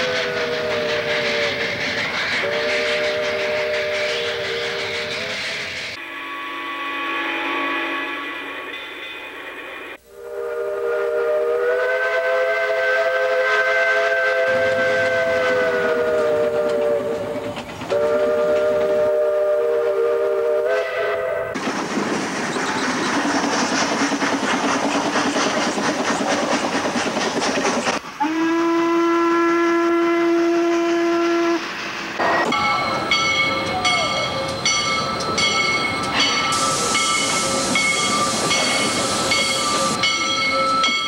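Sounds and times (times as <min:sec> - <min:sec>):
steam hiss: 0:00.0 - 0:06.0, 0:21.5 - 0:28.4, 0:30.2 - 0:41.0
steam locomotive chuffing: 0:00.0 - 0:06.0, 0:09.8 - 0:41.0
steam whistle: 0:00.0 - 0:08.7, 0:10.0 - 0:21.6, 0:28.2 - 0:41.0.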